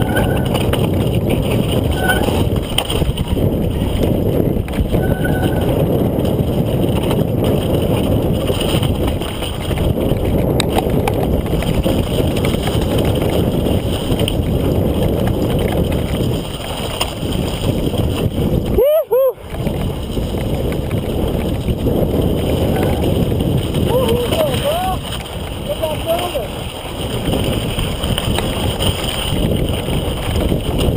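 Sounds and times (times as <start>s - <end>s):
bike clicks and knocks: 0.0s - 18.8s, 19.4s - 30.9s
tyres on mud: 0.0s - 30.9s
wind on microphone: 0.0s - 30.9s.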